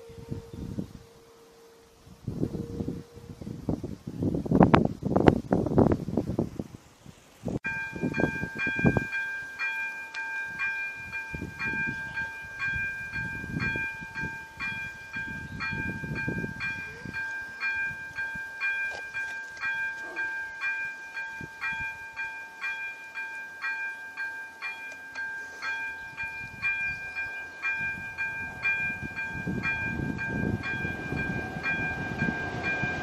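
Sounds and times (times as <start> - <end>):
level crossing electronic bell: 7.7 - 33.0.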